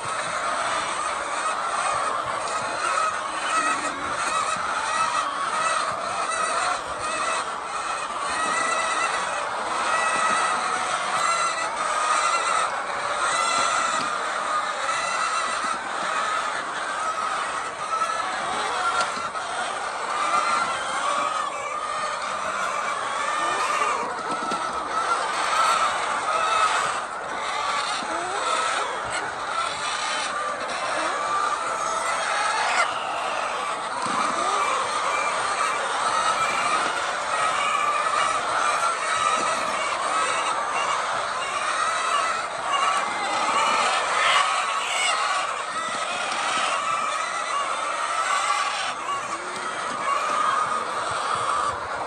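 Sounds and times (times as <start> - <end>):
hens calling: 0.0 - 52.0.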